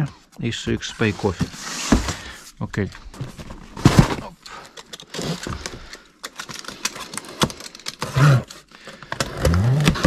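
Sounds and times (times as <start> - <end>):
packaging rustling and clicking: 2.2 - 10.0.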